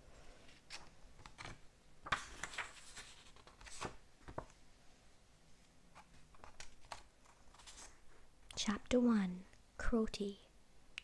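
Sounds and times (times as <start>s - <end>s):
pages rustling: 0.4s - 4.6s, 5.9s - 8.2s.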